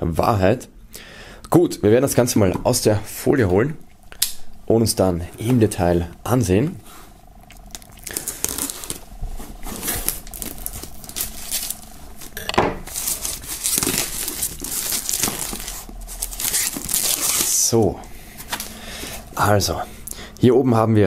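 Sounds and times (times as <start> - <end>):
plastic film crinkling and tearing: 7.6 - 18.7.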